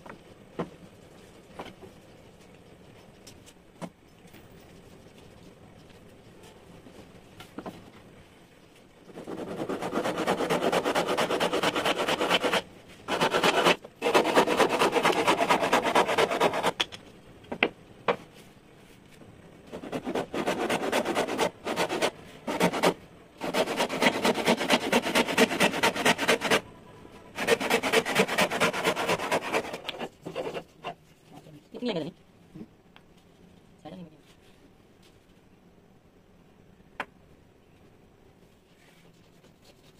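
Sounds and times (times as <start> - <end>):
handsaw cutting wood: 9.2 - 16.8, 19.7 - 26.6, 27.4 - 30.8.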